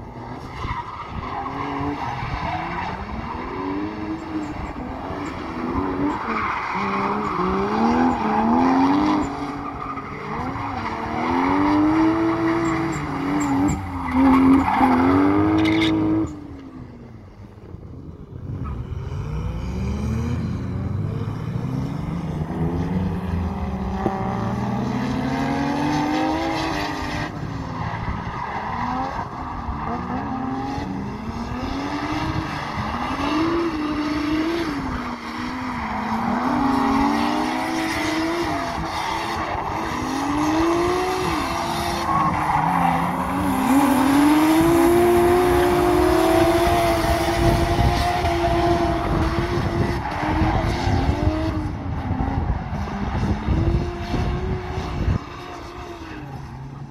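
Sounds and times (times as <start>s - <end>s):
tyre squeal: 0.4s - 16.4s
car engine revving: 18.6s - 56.9s.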